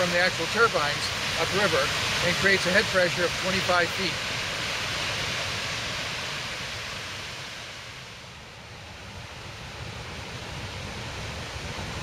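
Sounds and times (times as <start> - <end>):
water rushing over a dam: 0.0 - 12.0
wind rumble on microphone: 5.0 - 12.0.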